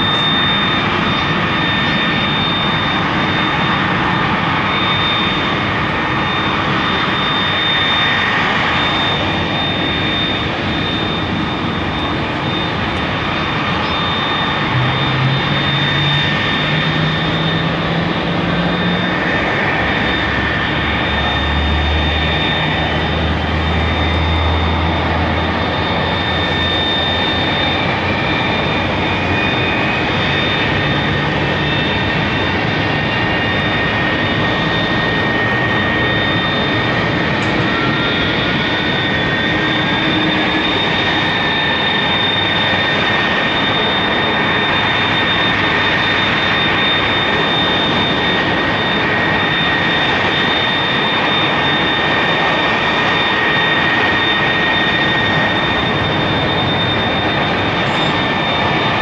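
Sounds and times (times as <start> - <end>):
jet engines whining: 0.0 - 59.0
low hum rising in pitch: 13.9 - 27.2.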